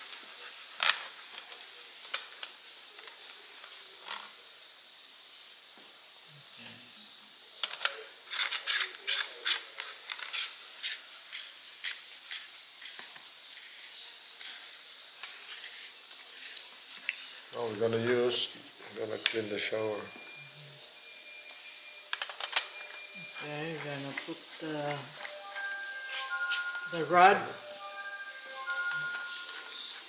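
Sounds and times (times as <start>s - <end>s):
steady low hiss: 9.4s - 30.0s.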